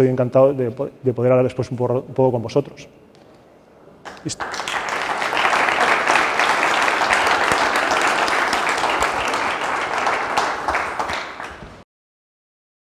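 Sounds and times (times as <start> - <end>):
audience applauding: 4.1 - 11.8.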